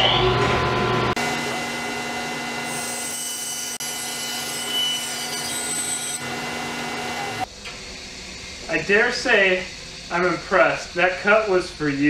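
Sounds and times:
band saw motor hum: 0.0 - 7.5
saw blade cutting wood: 2.7 - 7.4
dust collection vacuum: 5.9 - 7.5.

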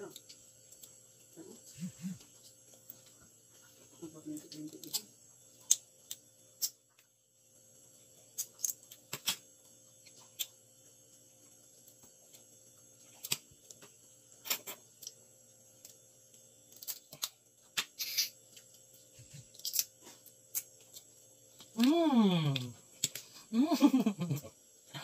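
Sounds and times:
crab shell cracking: 8.4 - 9.4, 19.5 - 20.7.

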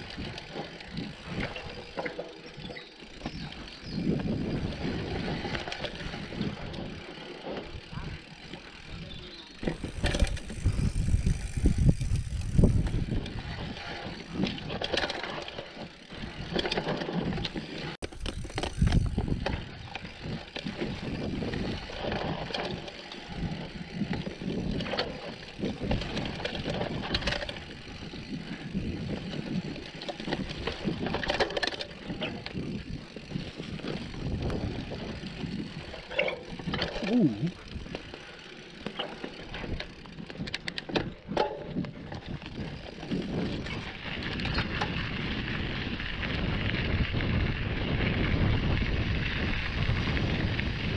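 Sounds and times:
mountain bike rattling: 0.0 - 50.9
wind buffeting microphone: 3.1 - 7.0, 7.7 - 15.0, 18.2 - 38.2, 39.5 - 50.9.

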